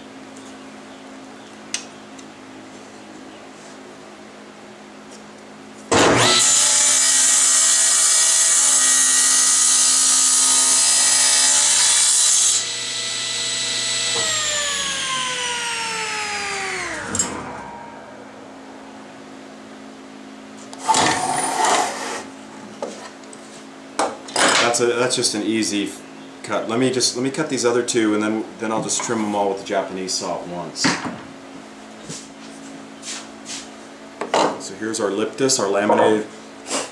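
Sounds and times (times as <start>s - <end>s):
table saw cutting wood: 5.9s - 18.6s, 20.8s - 22.3s
saw blade spinning down: 5.9s - 19.2s.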